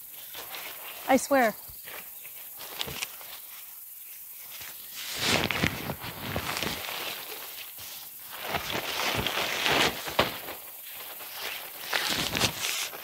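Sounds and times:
nylon fabric rustling: 0:04.4 - 0:13.0.

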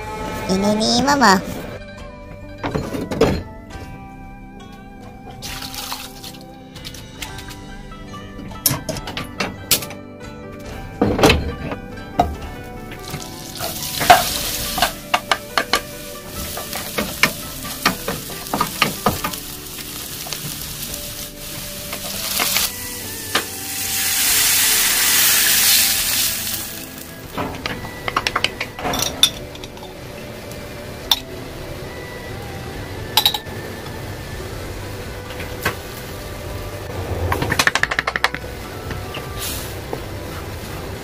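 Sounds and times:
food sizzling in butter: 0:13.1 - 0:27.3.

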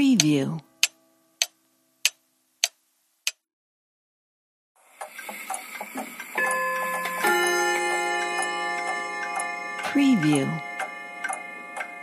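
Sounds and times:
pendulum clock ticking: 0:00.0 - 0:03.4, 0:05.0 - 0:12.0
clock chime ringing: 0:05.0 - 0:12.0.

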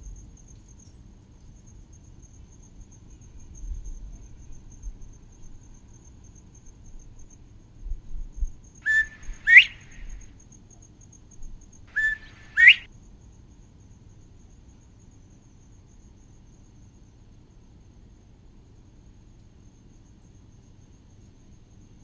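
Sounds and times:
high insect trill: 0:00.0 - 0:22.0
wind rumble on microphone: 0:06.9 - 0:10.3
bird calling: 0:08.8 - 0:10.3, 0:11.9 - 0:12.9.

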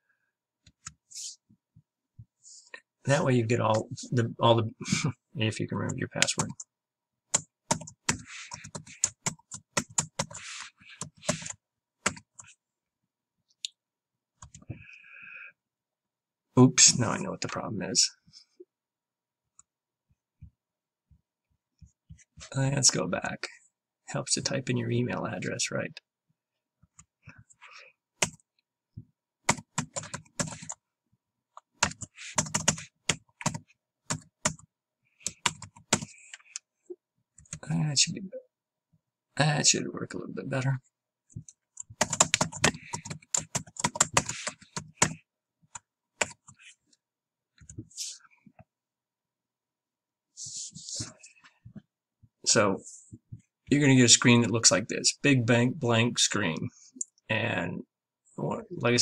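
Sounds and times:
keyboard keys clicking: 0:41.8 - 0:45.2.

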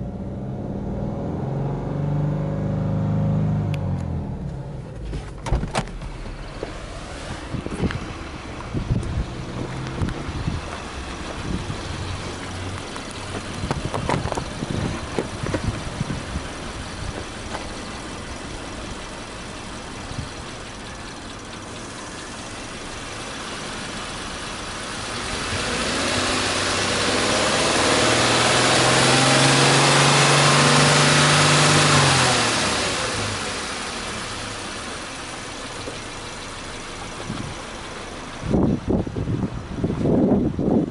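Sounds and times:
car engine idling and revving: 0:00.0 - 0:40.9
knocks and clicks: 0:12.7 - 0:15.9.

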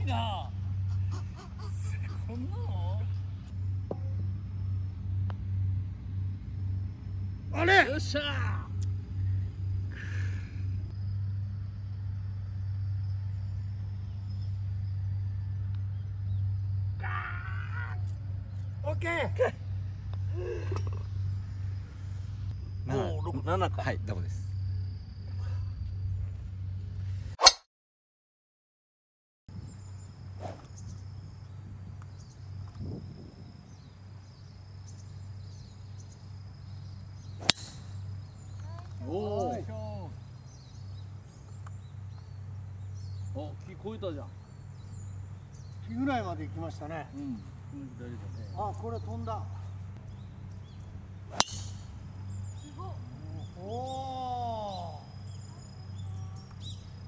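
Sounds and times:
insects chirping: 0:00.0 - 0:05.4, 0:06.2 - 0:27.2, 0:29.5 - 0:57.0
steady low rumble: 0:00.0 - 0:17.0, 0:18.0 - 0:27.1, 0:29.5 - 0:53.7
low hum: 0:00.0 - 0:27.3, 0:29.5 - 0:57.0
putter striking golf ball: 0:37.2 - 0:39.0, 0:51.3 - 0:52.0.

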